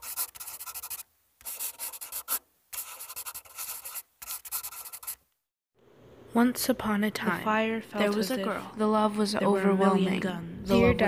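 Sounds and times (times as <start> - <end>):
rapid scratching on a surface: 0.0 - 5.2.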